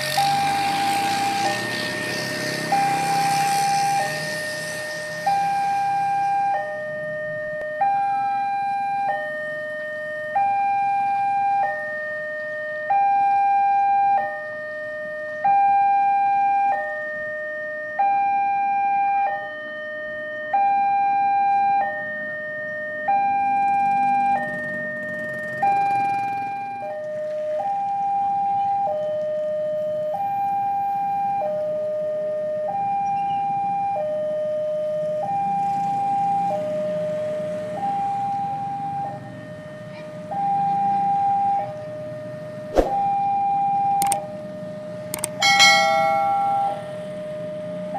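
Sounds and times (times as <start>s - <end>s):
two-tone level crossing alarm: 0.0s - 12.0s, 43.0s - 47.9s
low rumble of road traffic: 0.0s - 47.9s.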